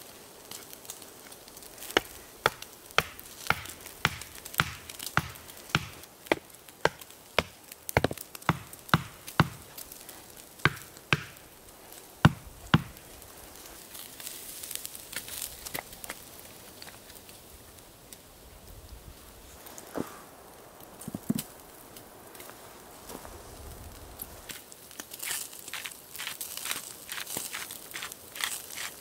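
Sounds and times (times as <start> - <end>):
blade chopping wood: 1.8 - 9.8, 10.6 - 11.4, 12.3 - 13.0.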